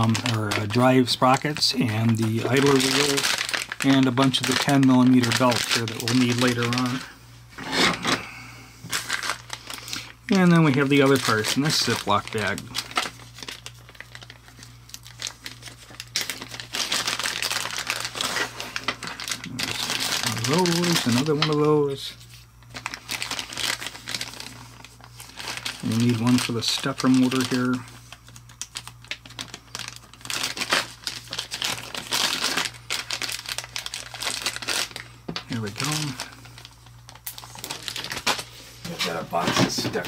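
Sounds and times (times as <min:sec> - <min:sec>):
plastic bag crinkling: 0:00.0 - 0:40.0.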